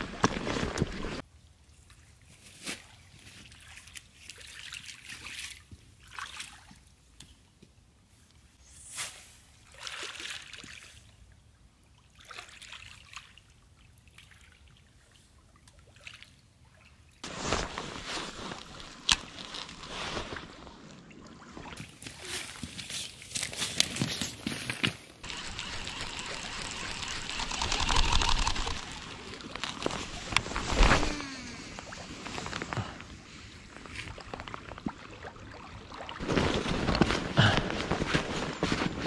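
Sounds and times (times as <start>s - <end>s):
water sloshing and trickling: 1.1s - 7.0s, 9.6s - 23.5s, 31.8s - 36.9s
sharp clicks: 25.3s - 30.4s.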